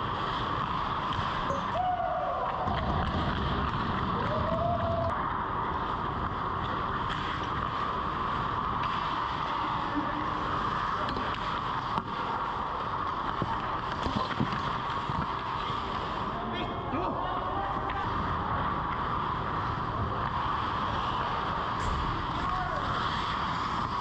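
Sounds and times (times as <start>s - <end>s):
skates scraping on ice: 2.4s - 4.5s, 5.5s - 16.4s, 17.9s - 24.0s.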